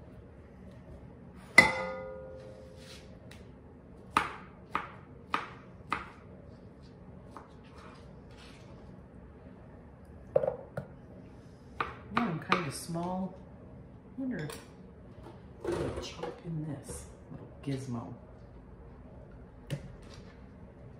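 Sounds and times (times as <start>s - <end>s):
knife chopping on plastic board: 4.1s - 6.2s.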